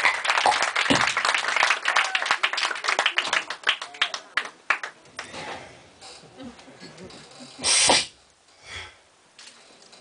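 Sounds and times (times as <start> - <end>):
audience clapping: 0.0 - 5.4.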